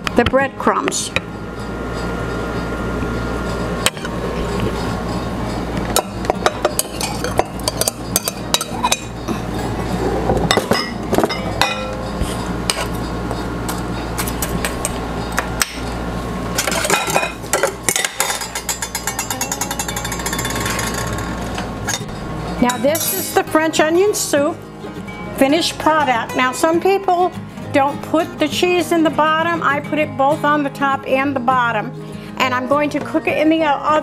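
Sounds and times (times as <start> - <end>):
steady low hum: 0.0 - 29.9
metal spoon scraping bowls: 3.5 - 15.0, 16.6 - 23.5.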